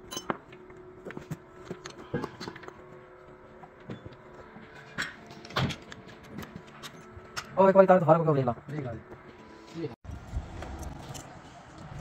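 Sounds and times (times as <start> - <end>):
metal tools clinking and knocking: 0.0 - 0.4.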